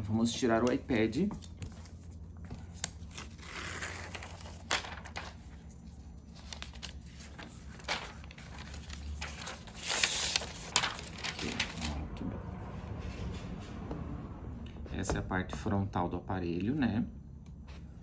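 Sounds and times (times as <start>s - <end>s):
paper rustling and crinkling: 0.6s - 12.0s.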